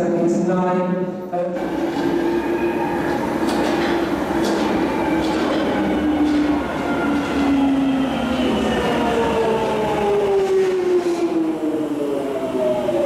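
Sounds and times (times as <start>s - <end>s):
train running rumble: 1.6s - 11.8s
wheels clicking over rails: 3.0s - 7.6s.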